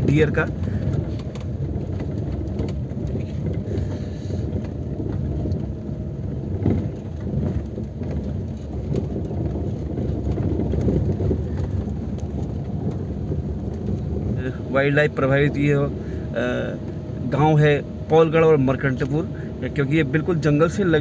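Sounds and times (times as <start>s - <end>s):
gravel knocks and ticks: 0.0s - 15.9s
tyre and suspension rumble: 0.0s - 21.0s.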